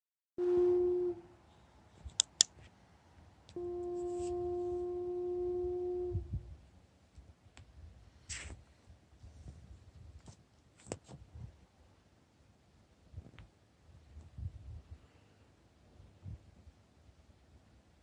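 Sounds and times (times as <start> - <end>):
sharp clicks: 2.1 - 2.6.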